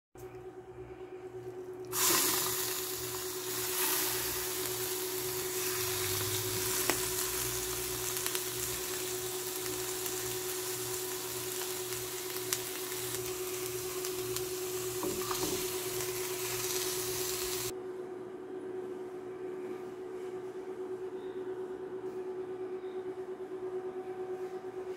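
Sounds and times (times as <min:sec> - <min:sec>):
faint hum: 0:00.2 - 0:24.9
liver sizzling in a pan: 0:01.9 - 0:17.7.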